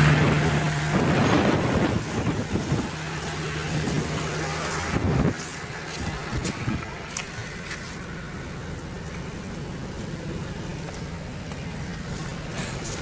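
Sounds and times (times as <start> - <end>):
car engine and tyres hum: 0.0 - 13.0.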